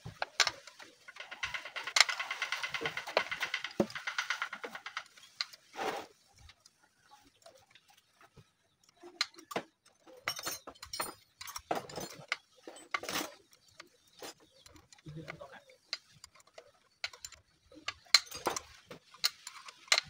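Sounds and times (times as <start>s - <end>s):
light metallic clicks and clinks: 8.8s - 20.0s.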